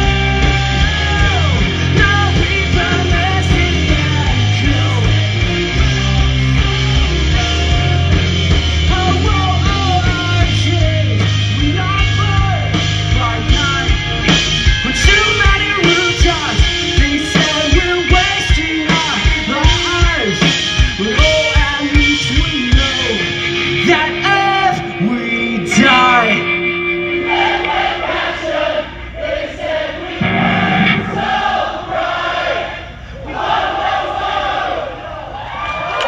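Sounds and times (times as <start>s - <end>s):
man singing: 0.0s - 14.0s, 14.8s - 26.5s
drum beat: 0.0s - 23.2s
bass guitar: 0.0s - 27.6s, 30.2s - 31.5s
electric guitars: 0.0s - 28.8s, 30.2s - 31.4s.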